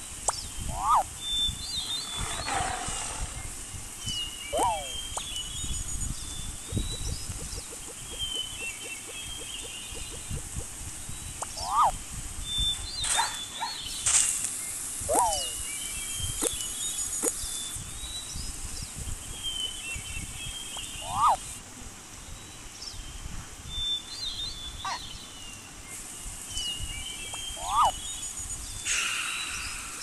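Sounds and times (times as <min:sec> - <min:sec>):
sharp hissing: 0:00.0 - 0:19.3, 0:25.9 - 0:30.0
birds chirping: 0:00.0 - 0:21.6, 0:22.2 - 0:30.0
quick up-and-down bird calls: 0:00.6 - 0:01.2, 0:04.5 - 0:05.3, 0:11.4 - 0:12.0, 0:15.0 - 0:15.6, 0:20.9 - 0:21.6, 0:27.2 - 0:28.0.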